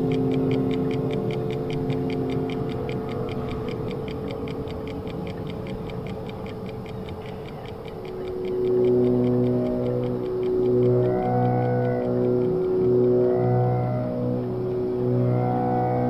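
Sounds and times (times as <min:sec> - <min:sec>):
mechanical ticking: 0:00.0 - 0:14.8
low droning tones: 0:00.0 - 0:16.0.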